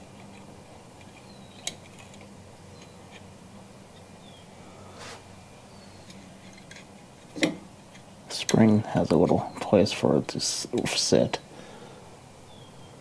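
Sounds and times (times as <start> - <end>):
steady low hum: 0.0 - 13.0
faint bird chirps: 5.6 - 6.2, 12.4 - 13.0.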